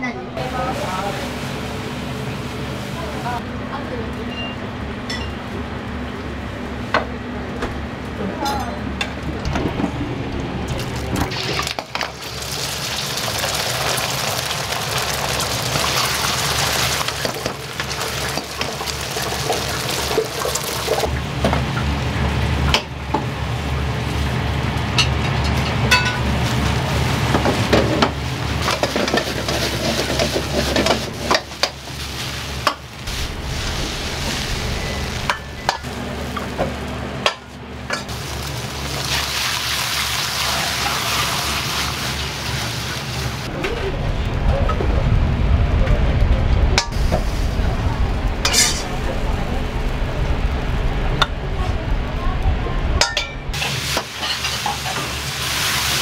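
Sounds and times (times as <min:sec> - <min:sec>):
food sizzling in a wok: 0:00.4 - 0:03.4, 0:11.3 - 0:37.1, 0:38.0 - 0:43.5, 0:46.8 - 0:50.8, 0:53.5 - 0:56.0
low rumble: 0:31.9 - 0:37.9, 0:43.2 - 0:53.6
metal ladle clanking on wok: 0:48.5 - 0:48.8.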